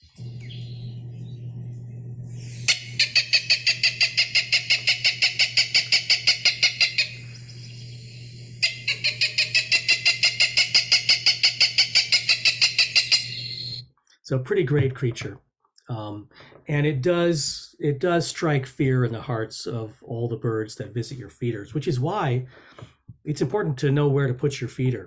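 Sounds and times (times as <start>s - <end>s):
steady low hum: 0.0s - 15.3s.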